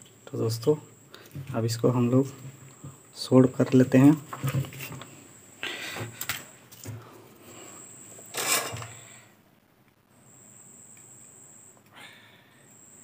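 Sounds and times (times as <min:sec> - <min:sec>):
thin high-pitched whine: 0:00.0 - 0:09.4
tool handling rustle: 0:08.3 - 0:09.0.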